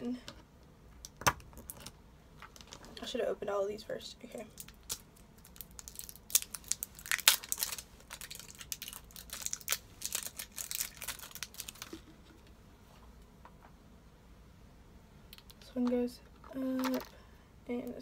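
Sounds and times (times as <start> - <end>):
plastic packaging crackling: 4.6 - 12.4, 16.4 - 17.2.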